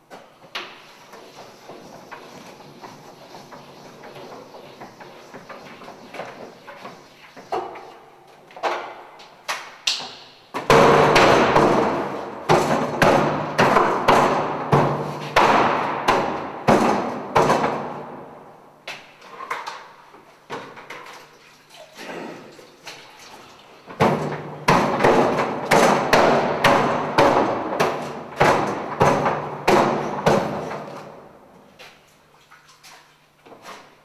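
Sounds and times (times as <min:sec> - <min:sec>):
wet sponge slapping a blackboard: 0:00.6 - 0:07.9.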